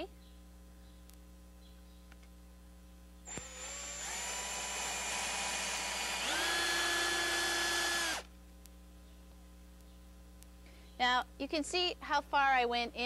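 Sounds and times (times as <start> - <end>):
cordless drill boring into wood: 3.3 - 8.3.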